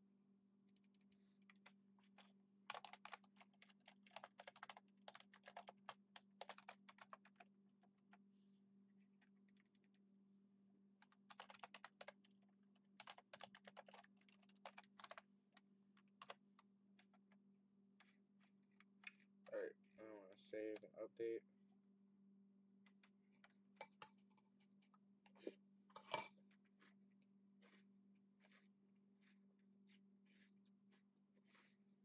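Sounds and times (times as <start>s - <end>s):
faint keyboard typing: 0.6s - 8.3s, 9.0s - 10.1s, 11.0s - 21.0s, 22.8s - 25.0s, 27.6s - 27.8s, 28.4s - 31.8s.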